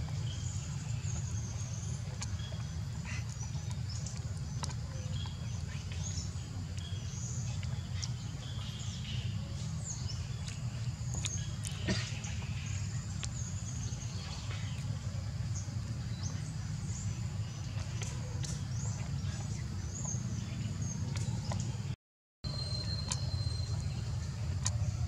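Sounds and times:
faint high chirps: 0:22.5 - 0:24.8.

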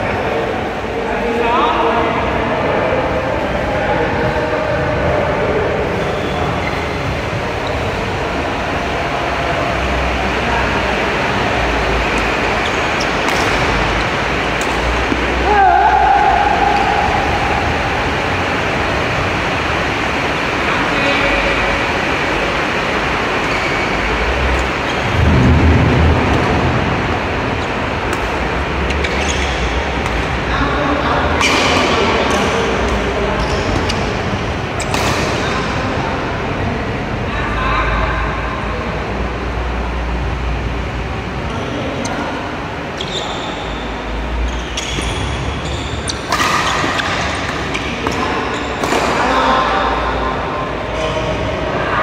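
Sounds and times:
loud steady rushing noise: 0:00.0 - 0:52.0
shoes squeaking on court: 0:12.1 - 0:15.3, 0:23.4 - 0:25.0, 0:27.6 - 0:30.2, 0:43.0 - 0:43.7, 0:44.4 - 0:49.1
racket striking shuttlecock: 0:13.0 - 0:13.9, 0:46.1 - 0:49.4
low rumble: 0:25.0 - 0:28.8.

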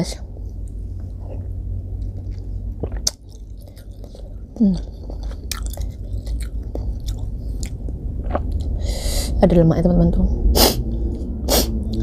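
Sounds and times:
person chewing: 0:01.1 - 0:08.8.

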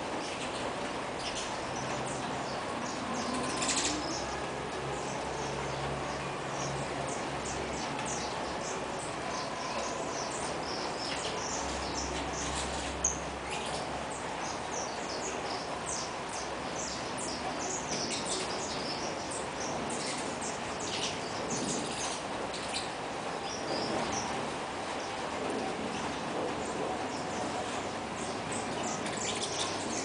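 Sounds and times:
steady background noise: 0:00.0 - 0:30.0
finches chirping: 0:06.5 - 0:25.2, 0:28.2 - 0:30.0.

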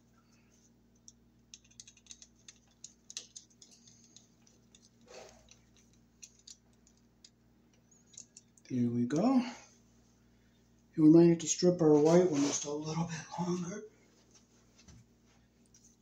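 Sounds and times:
switch and wires handled: 0:01.5 - 0:07.4.

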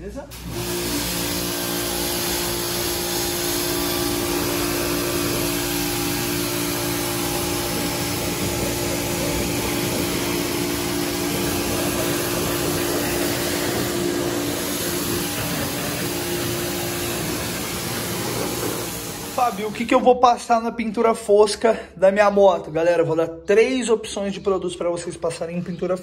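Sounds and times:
pressure washer humming: 0:00.3 - 0:20.1
water jet hissing: 0:00.3 - 0:20.1.

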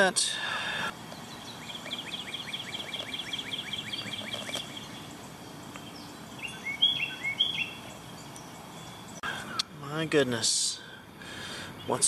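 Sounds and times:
birds chirping: 0:00.0 - 0:12.0
clear bird notes: 0:01.1 - 0:09.8.

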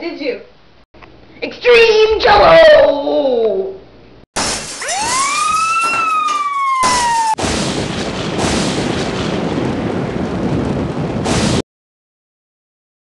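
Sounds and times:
falling bomb whistle: 0:04.7 - 0:07.4
explosion rumbling: 0:06.4 - 0:11.6.

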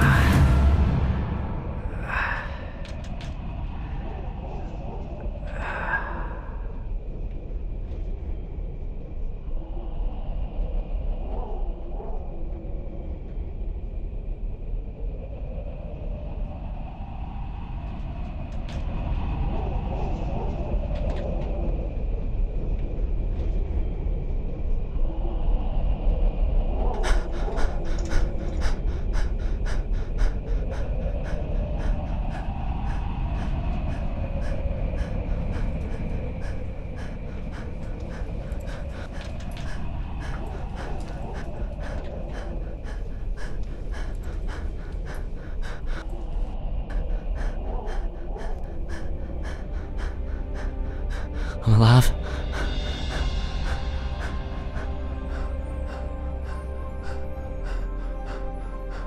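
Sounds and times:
steady low rumble: 0:00.0 - 0:59.0
man panting and gasping: 0:27.0 - 0:46.1, 0:46.9 - 0:59.0.

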